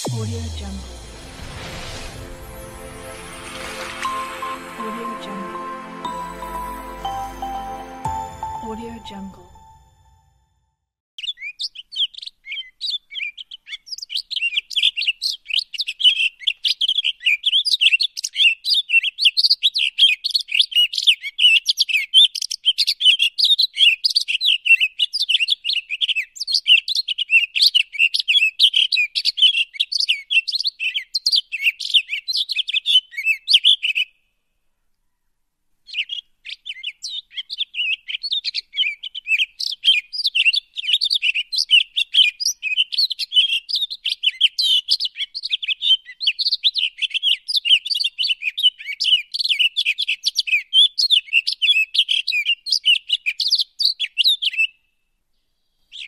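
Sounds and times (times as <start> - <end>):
small birds chirping: 11.2 - 34.2, 35.9 - 54.8.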